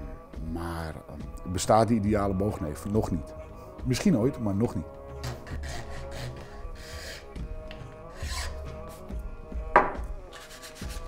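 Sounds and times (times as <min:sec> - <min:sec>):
hand file rasping on wood: 0:05.2 - 0:07.4, 0:08.1 - 0:08.7, 0:10.3 - 0:11.0.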